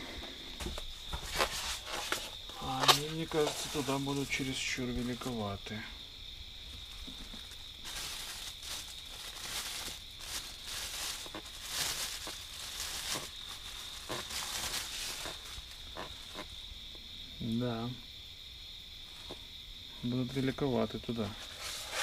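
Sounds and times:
crickets trilling: 0:00.0 - 0:22.0
packaging rustling: 0:00.6 - 0:05.4, 0:06.7 - 0:16.5, 0:21.4 - 0:22.0.

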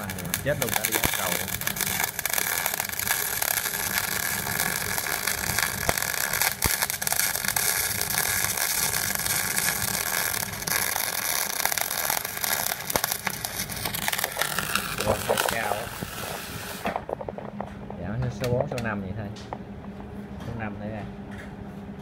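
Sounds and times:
welding arc crackling hiss: 0:00.0 - 0:17.3
welding pops: 0:00.0 - 0:19.6.

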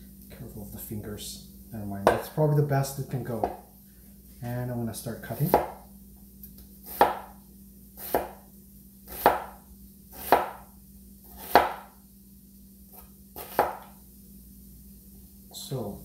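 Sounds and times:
cleaver cutting onion on board: 0:05.3 - 0:05.8, 0:06.8 - 0:07.4, 0:08.0 - 0:08.4, 0:09.1 - 0:10.7, 0:11.3 - 0:12.0, 0:13.0 - 0:13.9.

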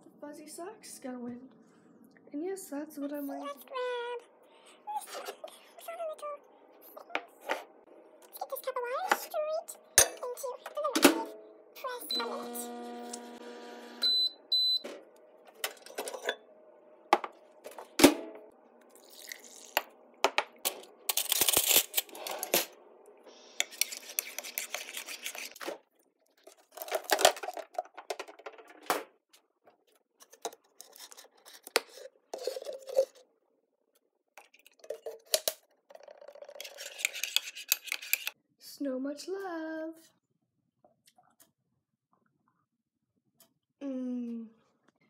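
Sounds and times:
spoon stirring in a mug: 0:23.6 - 0:25.6, 0:30.2 - 0:33.2, 0:35.9 - 0:38.4.

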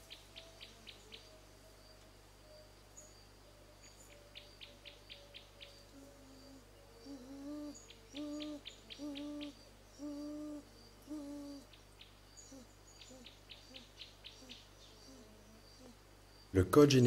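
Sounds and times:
low hooting calls: 0:03.5 - 0:16.1.

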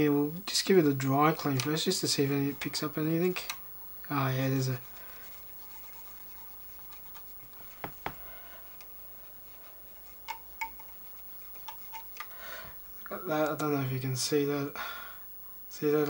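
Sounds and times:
cotton bud scratching: 0:04.4 - 0:12.3.

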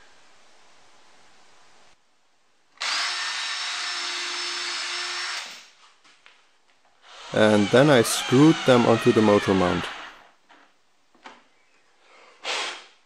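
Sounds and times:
cordless drill running: 0:02.8 - 0:05.6, 0:07.0 - 0:10.3.

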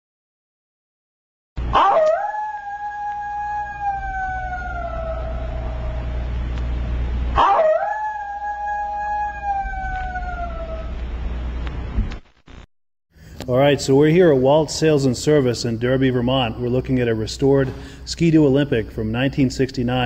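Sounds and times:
long falling howls: 0:01.6 - 0:06.4, 0:07.3 - 0:11.2
steady low hum: 0:01.6 - 0:20.0.

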